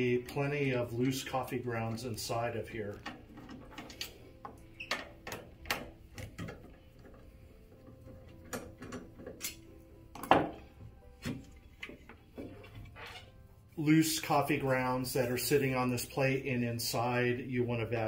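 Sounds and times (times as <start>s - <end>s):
faint background music: 0.0s - 18.0s.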